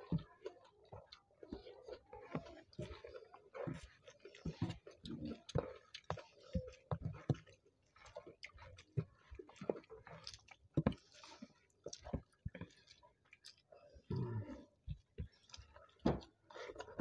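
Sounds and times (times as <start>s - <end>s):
chewing with wet smacks: 0.0s - 17.0s.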